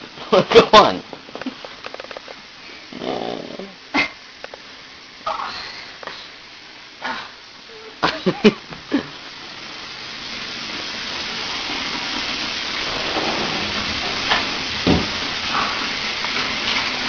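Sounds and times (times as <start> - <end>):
shower water spraying on tiles: 0.0 - 17.0
dull thump: 14.8 - 15.2
sharp knocks: 14.8 - 15.2.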